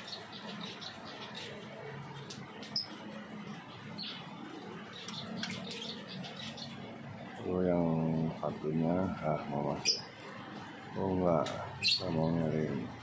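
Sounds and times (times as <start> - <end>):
finches chirping: 0.0 - 1.7, 3.7 - 6.9, 8.8 - 10.2, 11.4 - 12.9.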